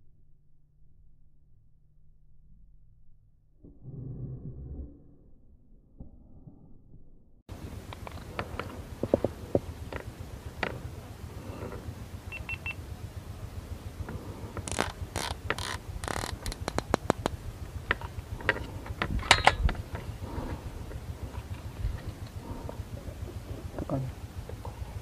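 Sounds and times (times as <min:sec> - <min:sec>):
steady low rumble: 0:00.0 - 0:25.0
clatter of clicks and knocks: 0:07.9 - 0:10.9, 0:14.1 - 0:20.6.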